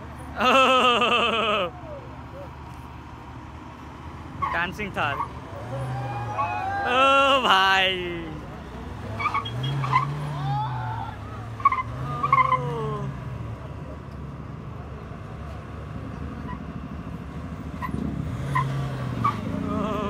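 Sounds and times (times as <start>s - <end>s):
onlookers shouting: 5.0s - 8.4s, 9.5s - 13.2s
car engine revving: 8.2s - 13.7s, 15.9s - 20.0s.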